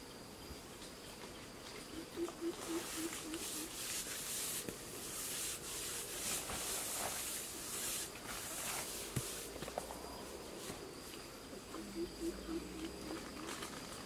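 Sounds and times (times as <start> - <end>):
hands smoothing wet cement: 2.6 - 9.8.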